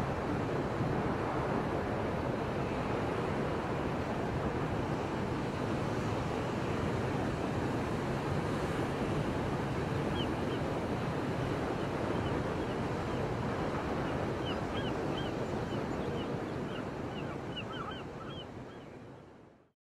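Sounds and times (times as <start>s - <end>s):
high bird calls: 16.7s - 18.8s.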